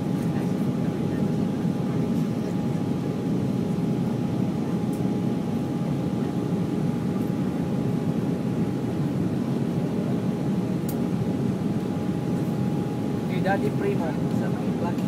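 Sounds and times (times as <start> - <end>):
airliner engines and airflow rush: 0.0 - 15.0.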